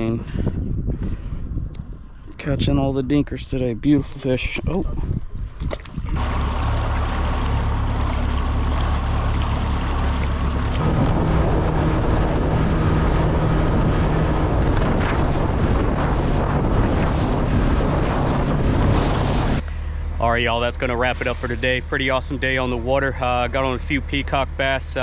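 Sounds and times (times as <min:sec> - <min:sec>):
wind buffeting microphone: 0:00.0 - 0:23.1
water rushing past hull: 0:05.0 - 0:23.9
boat motor running: 0:05.7 - 0:25.0.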